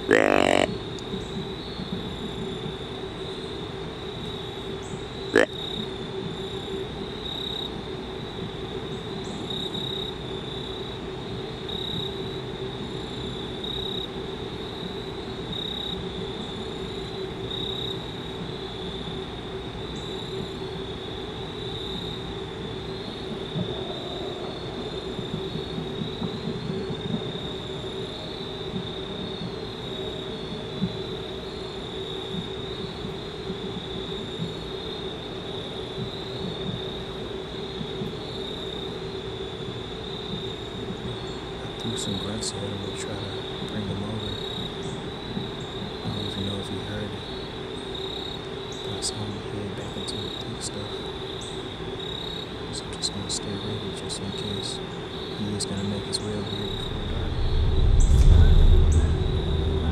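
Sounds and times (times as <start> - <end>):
insects buzzing: 0.0 - 59.9
low distant rumble: 56.0 - 59.9.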